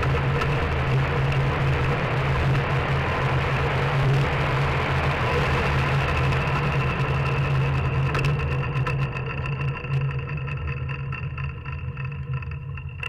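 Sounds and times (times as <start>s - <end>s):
cart wheels rumbling on tarmac: 0.0s - 13.0s.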